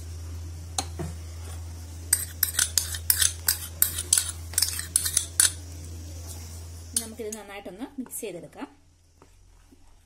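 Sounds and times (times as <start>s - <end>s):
spoon scraping glass bowl: 2.1s - 5.6s.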